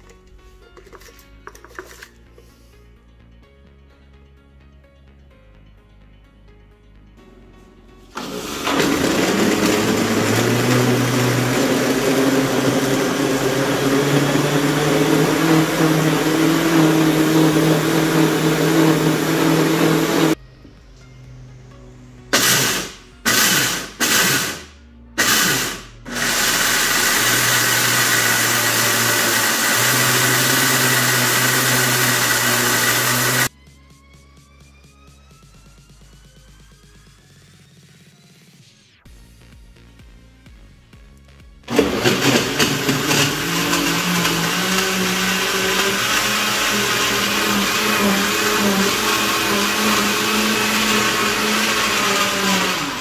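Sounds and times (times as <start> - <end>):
blender motor running: 8.2 - 20.4, 22.3 - 33.5, 41.7 - 53.0
blender pulsing chopping peanuts: 8.2 - 20.4, 22.3 - 33.5, 41.7 - 53.0.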